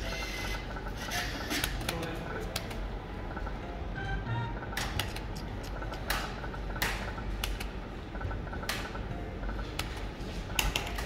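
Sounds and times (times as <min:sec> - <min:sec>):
slot machine beeping tones: 0:00.0 - 0:01.6, 0:03.1 - 0:07.2
steady low hum: 0:00.0 - 0:11.0
sharp clicks: 0:04.8 - 0:07.7.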